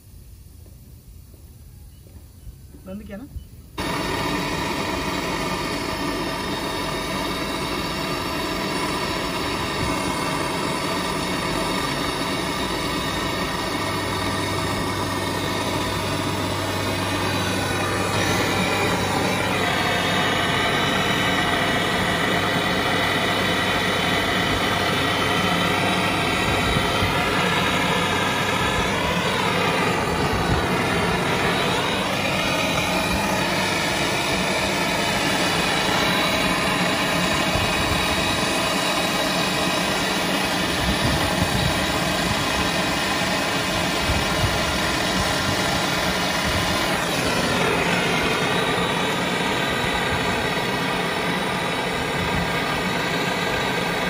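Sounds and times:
steady mechanical drone: 0.0 - 54.0.

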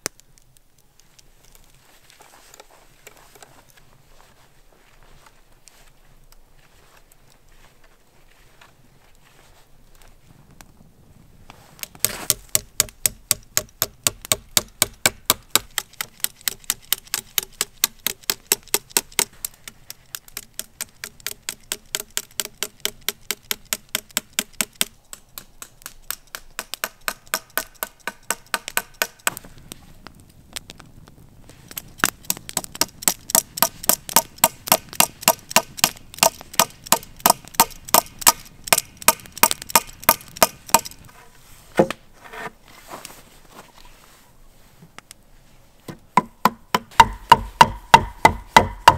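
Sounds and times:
sharp knocks: 46.2 - 48.9.

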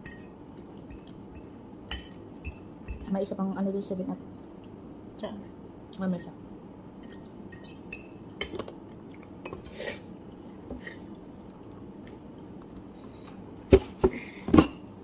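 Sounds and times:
sharp cutlery clinks: 0.0 - 0.3
soft eating noises: 0.0 - 3.4, 4.2 - 13.6.

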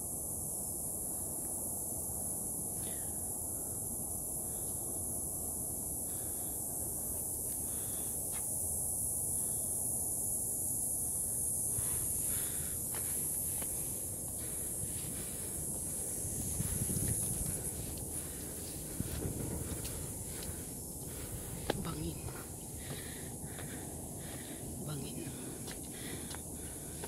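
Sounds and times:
cicadas shrilling: 0.0 - 27.0
footsteps on stone path: 11.8 - 27.0
wind rumble on microphone: 14.4 - 24.8.

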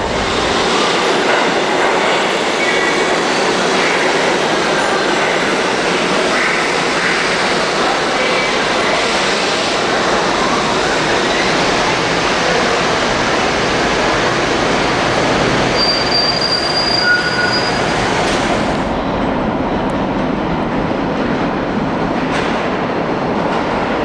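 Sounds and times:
subway train approaching: 0.0 - 24.0
subway wheels rumbling on rails: 0.0 - 24.0
high wheel squeals: 15.8 - 18.0.

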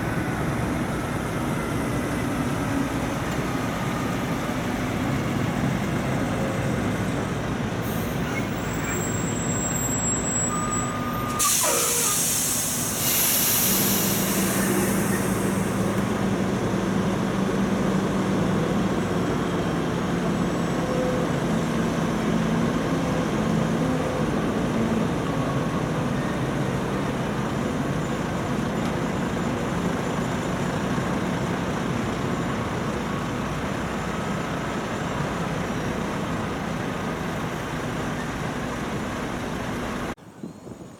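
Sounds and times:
diesel trucks droning past: 0.0 - 40.2
air brake hiss: 11.2 - 16.0.

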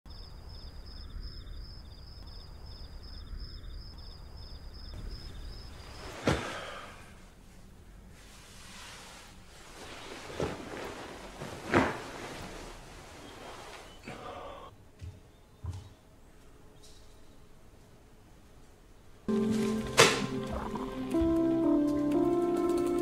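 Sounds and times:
insects chirping: 0.1 - 7.2, 19.3 - 22.6.

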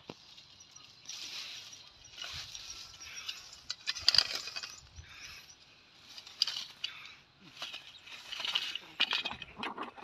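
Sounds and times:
rustling: 0.0 - 5.4, 6.0 - 9.6
light clinks and clicks: 0.0 - 9.7
metal rat trap rattling: 2.1 - 5.0.

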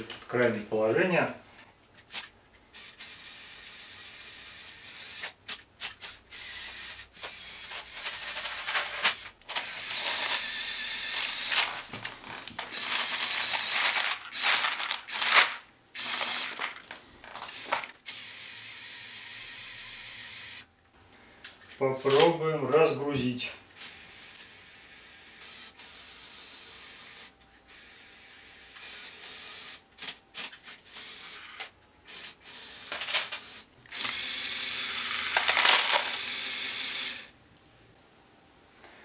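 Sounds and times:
toy electric motors whirring: 2.1 - 20.7, 23.8 - 37.3
plastic pieces clicking and rattling: 7.2 - 18.0, 32.9 - 34.2, 34.9 - 36.5.

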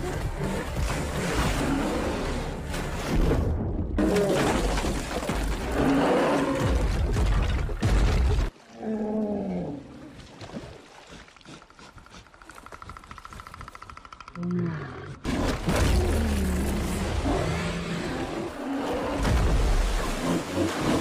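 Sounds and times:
heavy water splashing: 0.0 - 8.8, 18.5 - 21.0
bear roaring and growling: 14.3 - 21.0.

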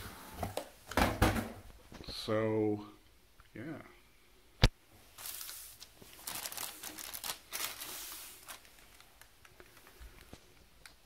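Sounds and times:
plastic bags crinkling: 5.1 - 11.0.

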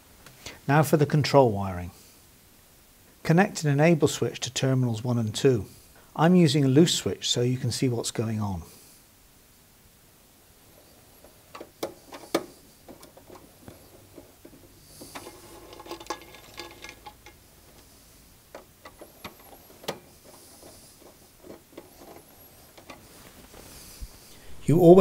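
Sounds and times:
handling rustle: 10.8 - 24.6.

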